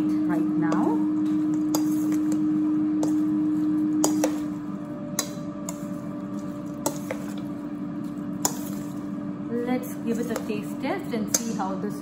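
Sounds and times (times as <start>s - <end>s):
air fryer humming: 0.0s - 12.0s
metal spoon clinking on bowl: 4.0s - 4.5s.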